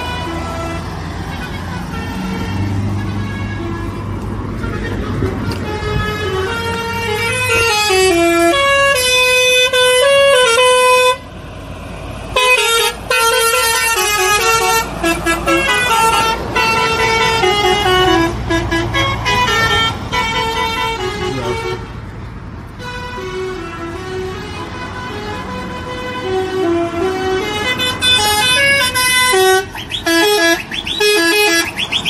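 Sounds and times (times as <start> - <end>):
musical air horn playing a tune: 4.6 - 11.2, 12.4 - 21.9, 22.8 - 32.0.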